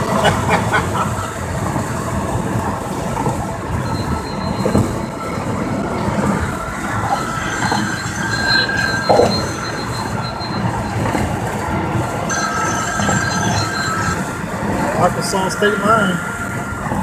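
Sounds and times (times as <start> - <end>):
wind and road noise in a car: 0.0 - 12.3, 13.1 - 17.0
faint high whistling: 6.4 - 11.2.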